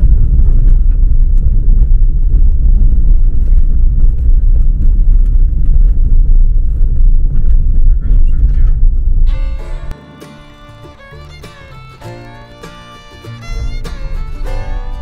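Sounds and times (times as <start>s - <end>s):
tyres rumbling on gravel: 0.0s - 15.0s.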